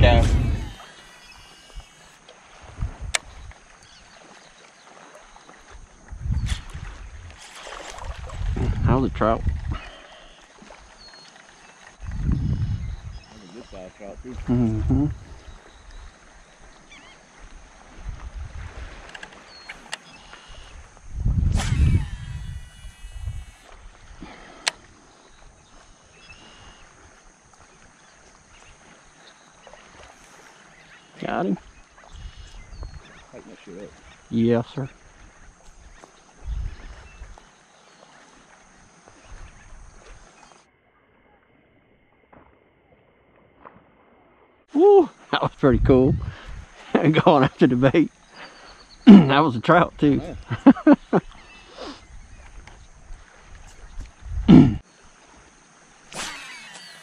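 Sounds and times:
thin high chirp: 0.0s - 2.2s
light wind: 0.0s - 40.7s, 43.3s - 57.0s
small waves rippling: 0.0s - 57.0s
person grunting: 54.5s - 54.8s.

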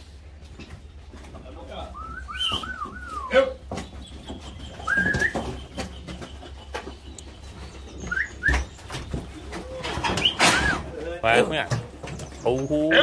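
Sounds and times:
knocks and clatter: 0.0s - 12.7s
birds chirping: 0.0s - 13.0s
bird cooing: 2.0s - 3.3s, 4.1s - 10.9s.

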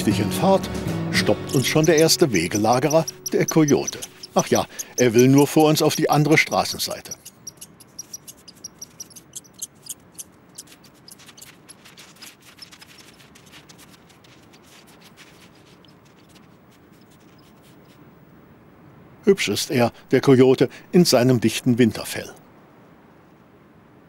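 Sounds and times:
paws crunching on snow: 1.2s - 7.2s, 10.6s - 18.0s
faint low hiss: 5.8s - 24.0s.

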